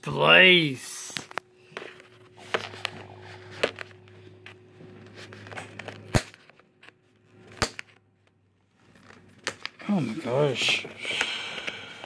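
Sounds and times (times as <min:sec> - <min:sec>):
faint low hum: 0:00.0 - 0:12.0
plastic clicks and crinkles: 0:01.2 - 0:09.8.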